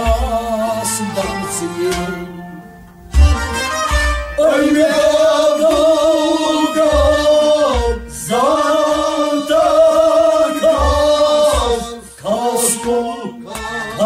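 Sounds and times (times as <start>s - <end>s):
instrumental accompaniment: 0.0s - 14.0s
low thumps: 1.3s - 12.0s.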